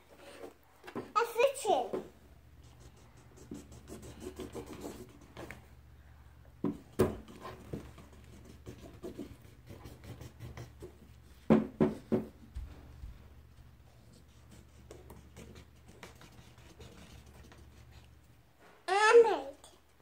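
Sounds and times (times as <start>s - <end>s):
markers scratching on paper: 2.6s - 5.6s, 7.0s - 11.3s, 13.9s - 18.2s.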